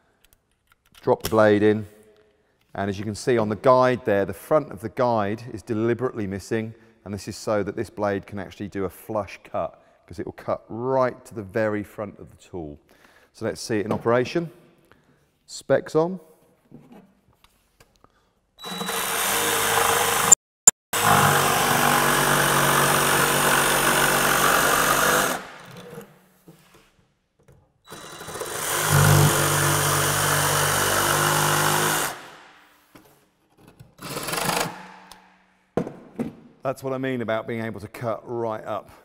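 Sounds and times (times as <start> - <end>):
jigsaw sawing board: 18.7 - 20.4, 21.0 - 26.0, 27.9 - 32.3.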